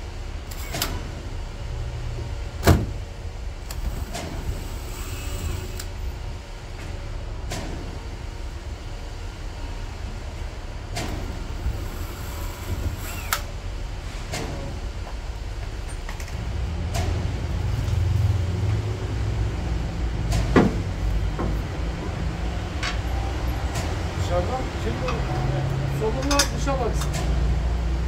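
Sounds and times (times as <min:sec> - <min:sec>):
cordless drill driving screws: 0:13.0 - 0:13.4
parts clicking and knocking: 0:26.2 - 0:27.4.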